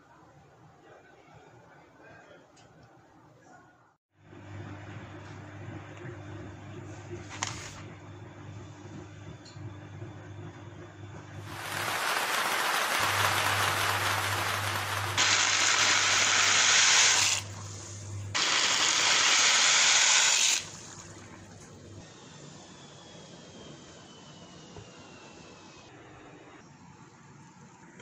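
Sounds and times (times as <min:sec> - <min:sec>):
water rushing hiss in pot: 0:11.4 - 0:21.2.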